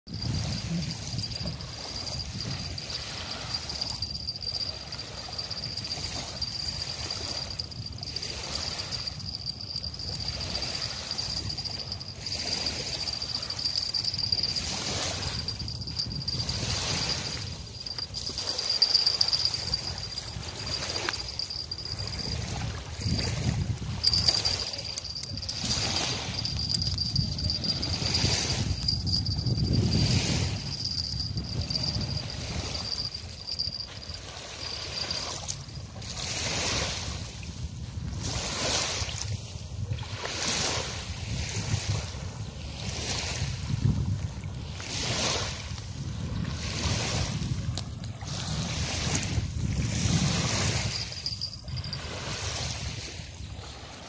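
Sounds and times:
thin high-pitched tone: 0.1s - 35.8s, 50.7s - 52.1s
small waves lapping on sand: 0.2s - 7.4s, 8.0s - 9.2s, 25.5s - 26.5s, 34.2s - 51.2s, 51.9s - 54.0s.

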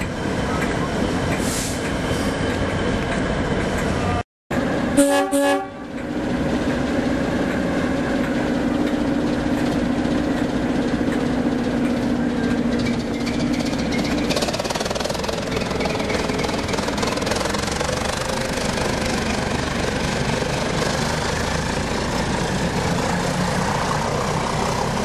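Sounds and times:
diesel locomotive engine running: 0.0s - 25.0s
locomotive horn blast: 5.0s - 5.9s.

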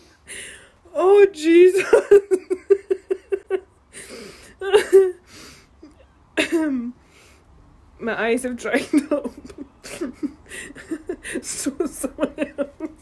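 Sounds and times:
woman laughing: 1.6s - 5.2s, 5.8s - 7.0s, 8.7s - 13.0s.

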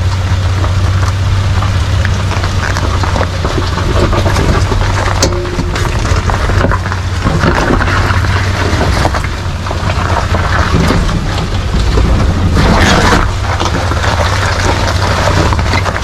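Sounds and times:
car engine running: 0.0s - 16.0s
rough rushing noise with crackles: 0.0s - 16.0s.

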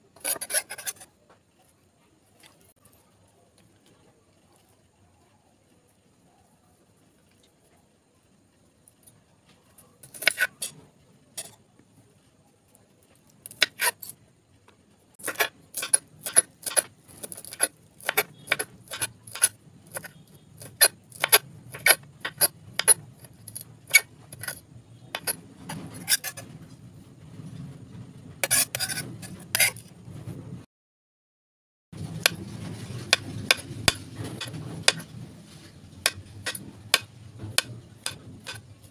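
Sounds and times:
knife chopping on stone counter: 0.2s - 1.1s, 10.0s - 10.8s, 15.2s - 26.4s, 28.4s - 29.8s, 33.1s - 35.1s, 36.0s - 38.7s.

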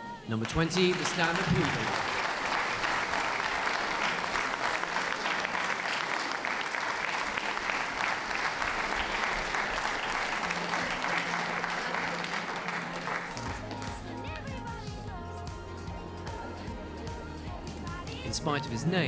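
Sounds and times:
audience applauding: 0.3s - 14.9s.

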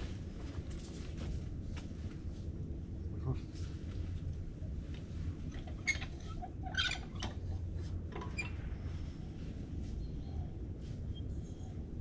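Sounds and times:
low steady rumble: 0.0s - 12.0s
metal handle squeaking and clicking: 5.6s - 8.6s.

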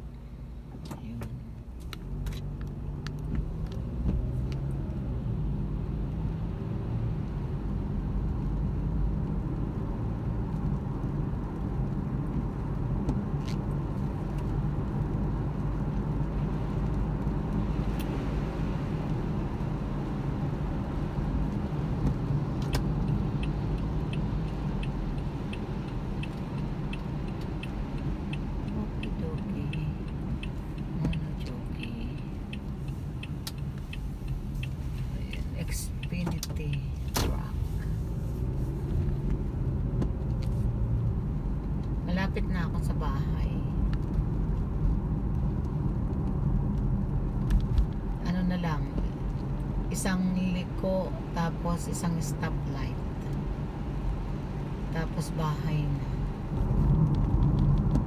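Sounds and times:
car engine and tyre noise: 0.0s - 58.0s
turn-signal indicator ticking: 22.0s - 38.2s.

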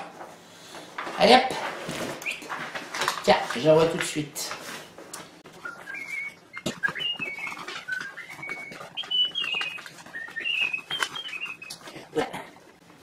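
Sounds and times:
person whistling a tune: 5.6s - 11.8s.

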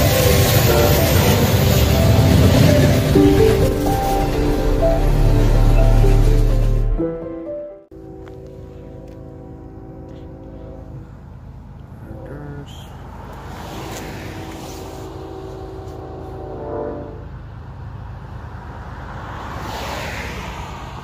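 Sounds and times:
distant locomotive horn: 0.0s - 7.0s, 7.9s - 13.1s, 14.2s - 17.5s
vehicle passing with tyre noise: 0.0s - 7.0s, 8.0s - 21.0s.

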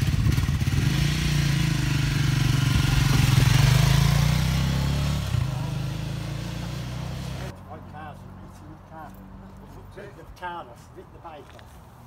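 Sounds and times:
motorcycle engine idling and pulling away: 0.0s - 7.5s.

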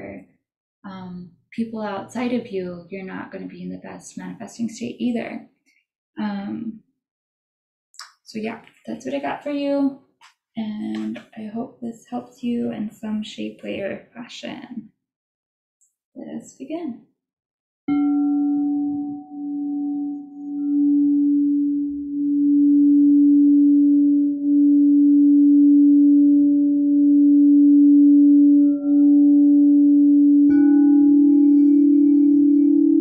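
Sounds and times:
crystal bowl struck ringing: 17.9s - 21.1s, 30.4s - 33.0s
crystal singing bowl humming: 17.9s - 33.0s.

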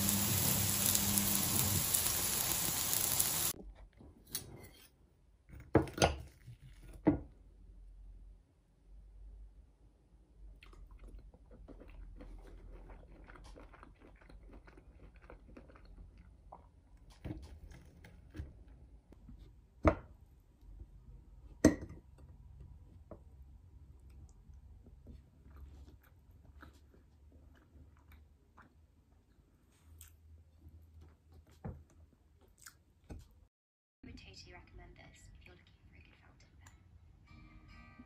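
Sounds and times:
person chewing: 10.6s - 16.9s, 24.0s - 31.6s, 32.4s - 32.9s.

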